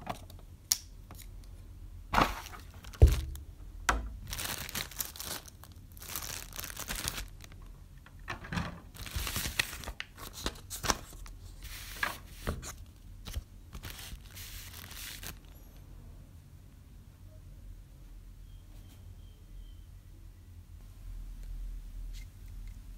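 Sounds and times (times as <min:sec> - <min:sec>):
plastic bag crinkling: 0:02.2 - 0:03.4, 0:04.2 - 0:07.7, 0:08.9 - 0:12.0, 0:12.8 - 0:15.6
paper sheet being handled: 0:08.9 - 0:15.5.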